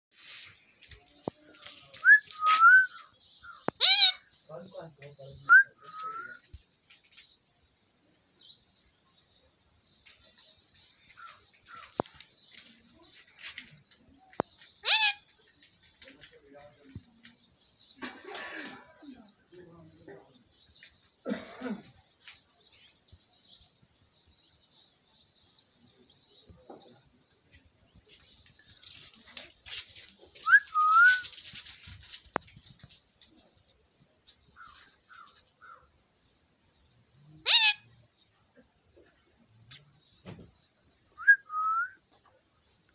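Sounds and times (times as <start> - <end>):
parakeet squawk: 3.8 - 4.2, 37.4 - 37.8.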